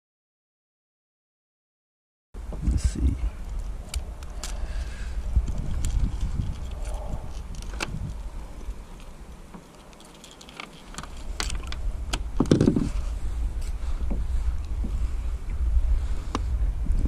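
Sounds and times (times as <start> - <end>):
wind rumbling on microphone: 2.4 - 17.0.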